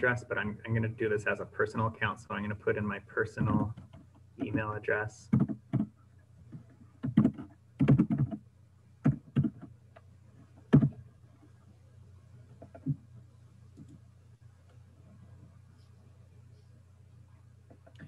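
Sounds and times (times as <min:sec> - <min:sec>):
computer keyboard typing: 0:05.3 - 0:08.4, 0:09.0 - 0:10.0, 0:10.7 - 0:11.0.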